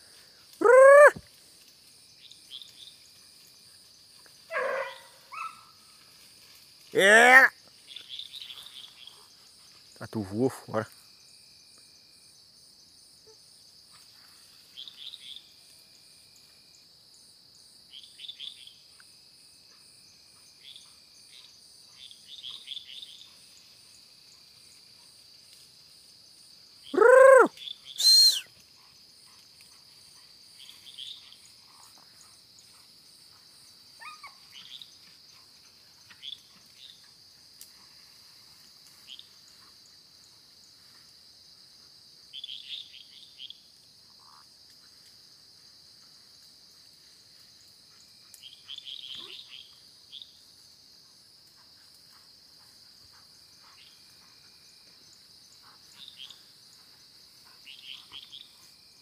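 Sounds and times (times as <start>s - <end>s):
insects trilling: 0.0s - 59.0s
loud short rising cry: 0.6s - 1.2s, 27.0s - 28.4s
frogs chirping: 53.1s - 58.6s.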